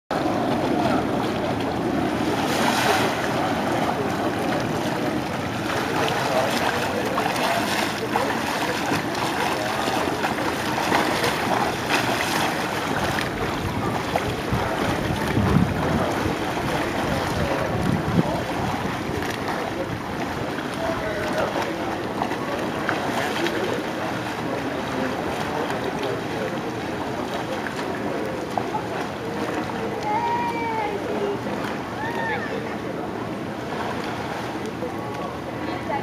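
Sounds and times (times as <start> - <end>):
pool water splashing: 0.1 - 36.0
swimming strokes and kicks: 0.2 - 30.0
wind on microphone: 11.5 - 21.2.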